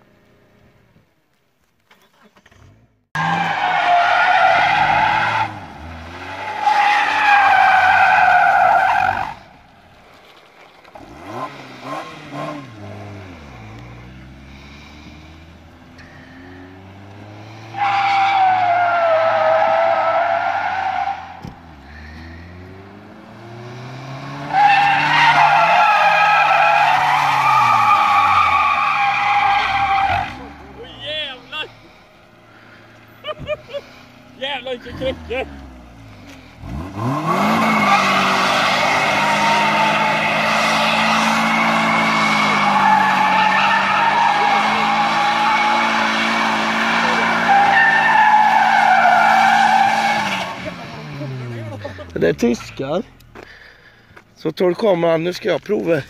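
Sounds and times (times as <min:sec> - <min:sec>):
car engine revving: 0:02.4 - 0:10.2, 0:10.9 - 0:53.6
tyres squealing: 0:06.2 - 0:09.5, 0:17.6 - 0:21.5, 0:24.5 - 0:35.6, 0:37.0 - 0:53.6.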